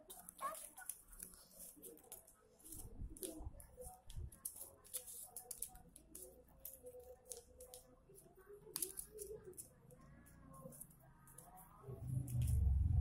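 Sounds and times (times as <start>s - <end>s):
paper rustling and clicking: 0.0s - 12.6s
soft low bumps: 11.9s - 13.0s.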